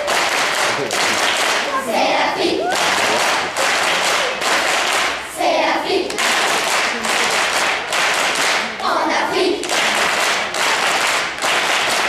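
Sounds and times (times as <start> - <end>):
hands clapping: 0.0 - 1.9, 2.7 - 5.2, 6.0 - 8.8, 9.6 - 12.0
children's voices: 1.5 - 7.5, 8.4 - 10.3.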